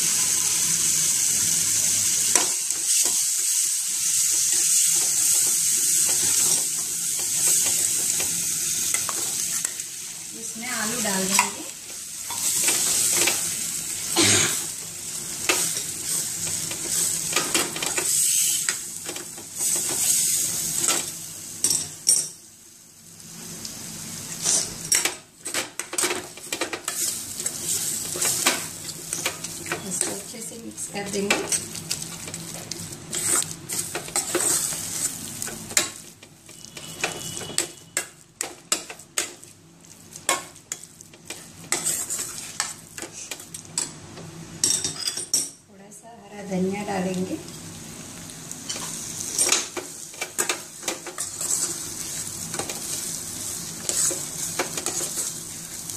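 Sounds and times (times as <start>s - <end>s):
food sizzling in pan: 0.0s - 45.0s, 45.8s - 55.9s
metal spoon scraping pan: 41.3s - 43.1s, 51.1s - 51.8s.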